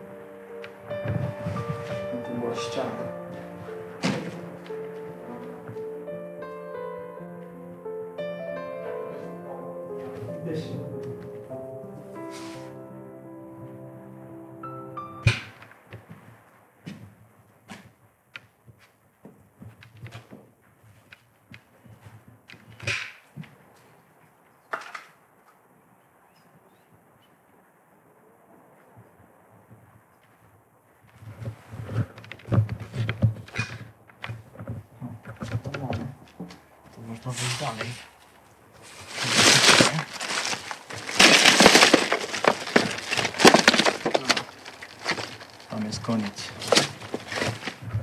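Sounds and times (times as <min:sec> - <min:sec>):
footsteps crunching through debris: 0:00.0 - 0:06.2, 0:31.1 - 0:48.0
scraping rustle: 0:00.2 - 0:06.0, 0:12.1 - 0:12.8, 0:30.2 - 0:48.0
debris and plastic bottles clinking: 0:00.6 - 0:05.8, 0:38.8 - 0:48.0.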